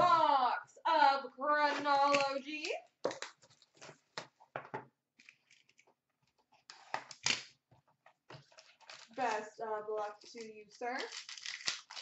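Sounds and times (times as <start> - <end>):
cardboard and wrapper crackling: 8.4 - 12.0.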